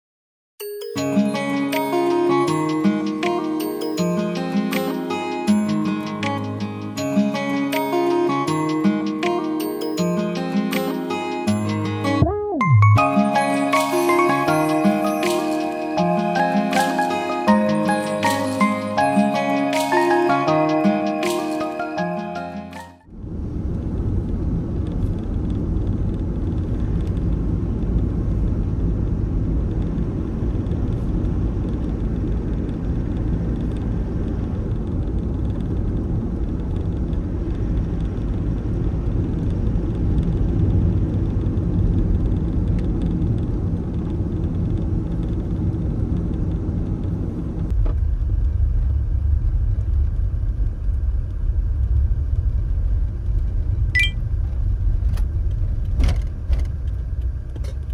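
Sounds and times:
van engine and road rumble: 1.0s - 57.9s.

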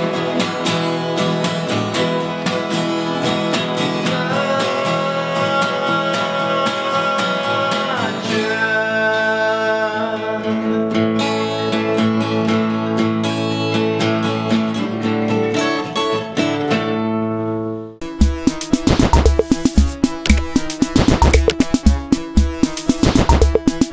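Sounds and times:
man singing: 4.0s - 10.5s.

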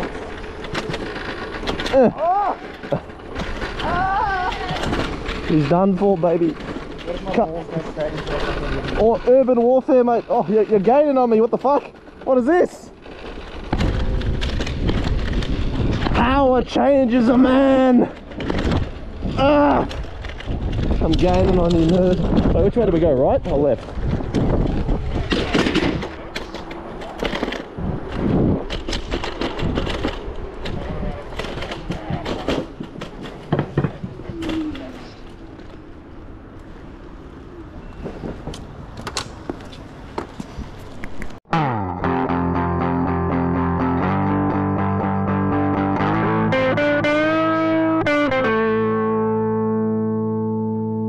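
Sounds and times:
scooter rattling over rough pavement: 0.0s - 41.4s
distorted electric guitar riff: 41.5s - 51.0s.

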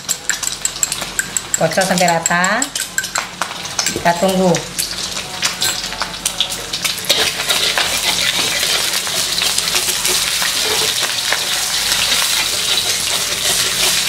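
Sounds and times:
egg sizzling in hot oil: 0.0s - 14.0s
spatula scraping a wok: 6.9s - 14.0s.

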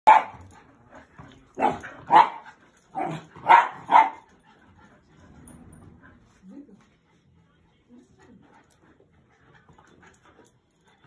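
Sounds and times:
terrier barking: 0.1s - 0.4s, 1.6s - 2.4s, 3.0s - 4.3s.

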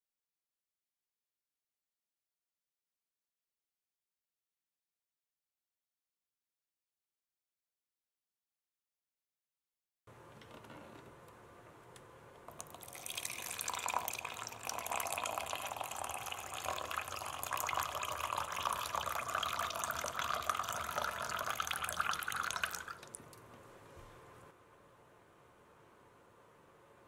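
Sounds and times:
water pouring into a cup: 12.5s - 23.3s.

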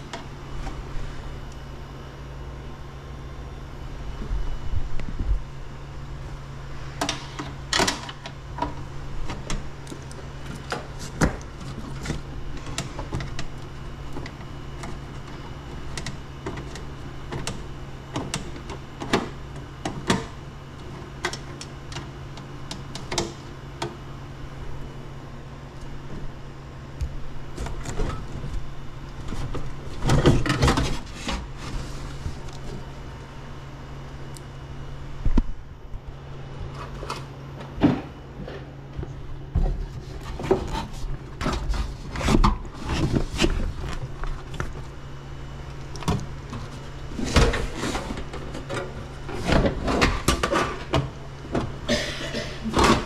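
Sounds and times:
steady low hum: 0.0s - 53.0s
hands handling wiring: 6.9s - 24.0s, 25.7s - 33.2s, 35.3s - 51.8s.

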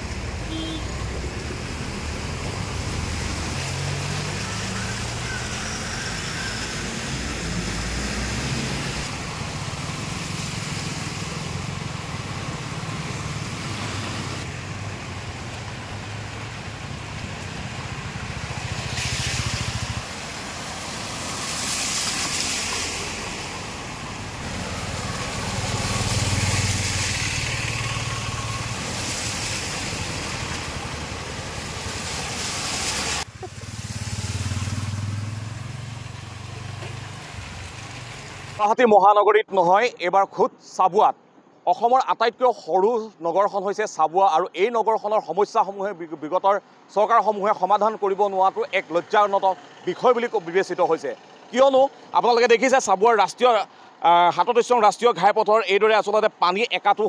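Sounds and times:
vehicle engines running: 0.0s - 38.6s, 47.5s - 54.4s
water sloshing and splashing: 8.3s - 38.6s.

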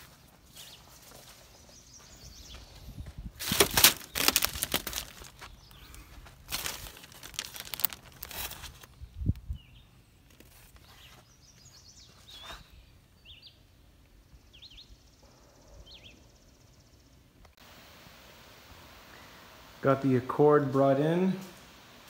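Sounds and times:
small birds chirping: 0.0s - 17.6s.

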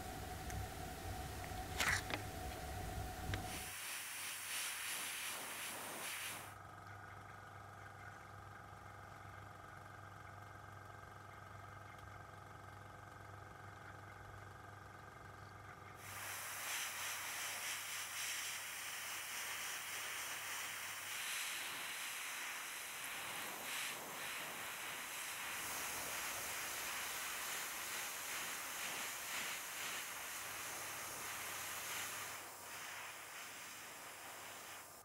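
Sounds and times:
airbrush setup humming: 0.0s - 6.6s, 16.0s - 35.0s
airbrush spraying hiss: 0.0s - 6.6s, 16.0s - 35.0s.

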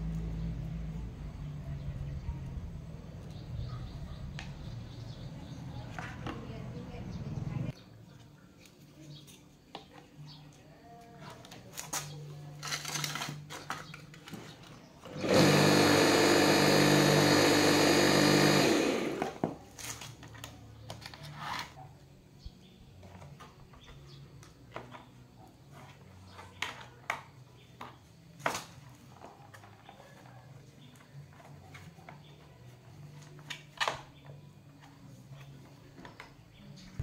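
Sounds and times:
small electric motor running: 15.1s - 19.4s.

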